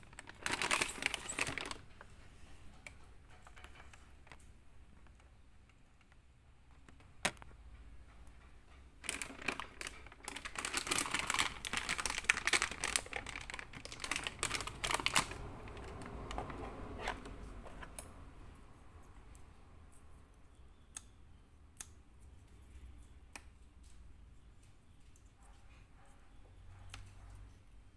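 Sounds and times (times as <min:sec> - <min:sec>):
plastic wrapping crinkling: 0:00.0 - 0:02.1, 0:09.0 - 0:17.3.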